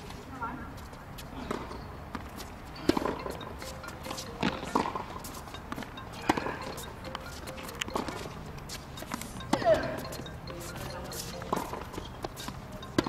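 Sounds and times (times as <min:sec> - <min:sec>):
ball bouncing: 0:02.9 - 0:13.0.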